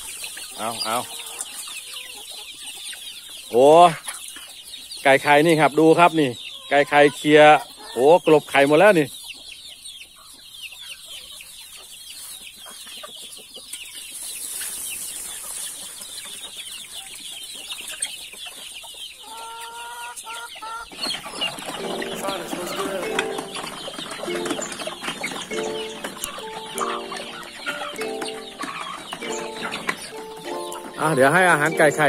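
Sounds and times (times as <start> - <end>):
chickens clucking and calling: 0.0 - 32.0
hen call: 20.6 - 32.0.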